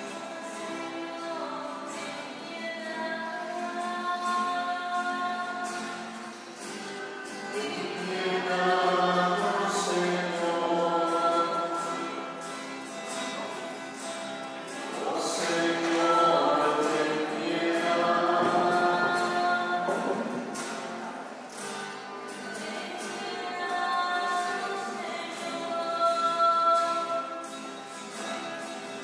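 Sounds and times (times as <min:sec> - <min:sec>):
choir singing a hymn: 0:07.5 - 0:12.4, 0:14.7 - 0:20.6, 0:22.3 - 0:27.4.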